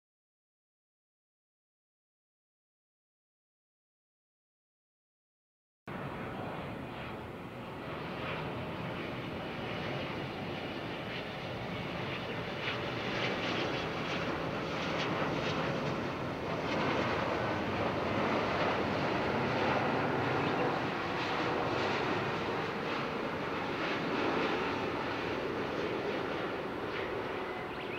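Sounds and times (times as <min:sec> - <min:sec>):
jet airliner landing: 0:05.9 - 0:27.9.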